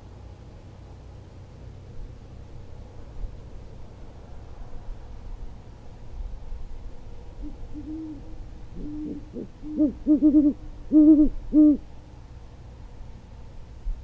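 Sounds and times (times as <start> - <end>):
owls hooting: 7.4 - 11.8.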